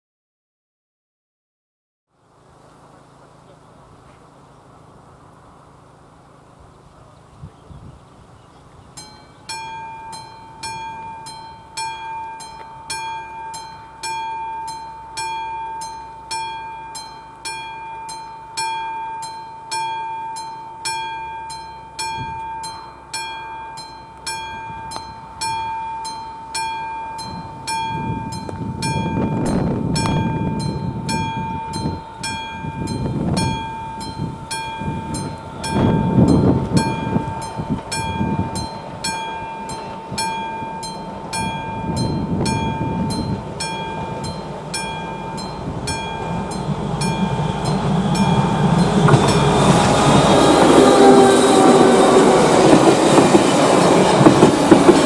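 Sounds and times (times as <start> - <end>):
level-crossing warning bell: 8.9 - 55.0
train wheels knocking: 41.4 - 55.0.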